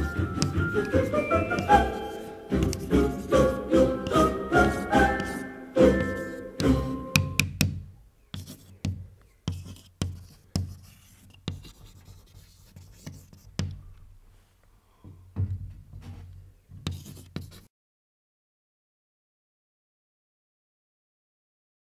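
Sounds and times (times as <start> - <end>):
sharp scratchy taps: 6.0 - 13.8.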